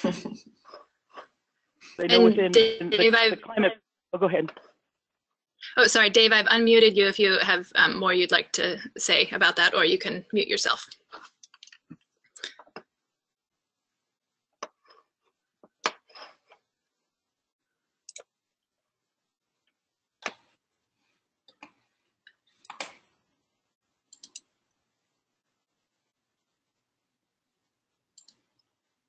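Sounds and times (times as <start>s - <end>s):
faint clicks and taps: 21.4s - 23.2s.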